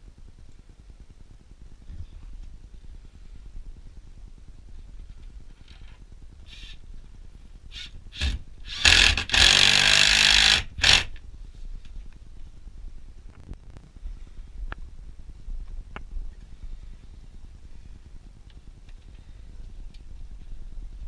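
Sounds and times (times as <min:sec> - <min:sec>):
cordless drill driving screw: 0:07.7 - 0:11.2.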